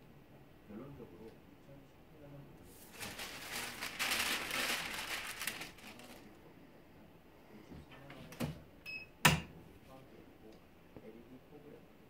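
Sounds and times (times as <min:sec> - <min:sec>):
paper rustling and crinkling: 0:02.7 - 0:06.4.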